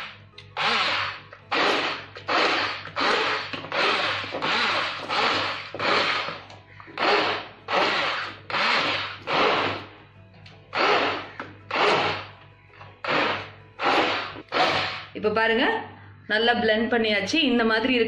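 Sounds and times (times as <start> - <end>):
immersion blender whirring: 0.0 - 9.9, 10.7 - 12.3, 13.0 - 15.2.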